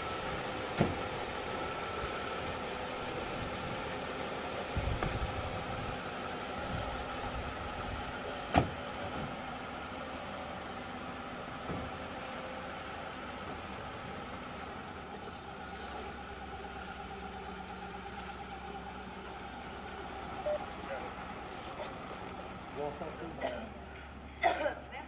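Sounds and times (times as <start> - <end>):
car engine idling: 0.0 - 25.0
car door slamming: 0.8 - 1.0.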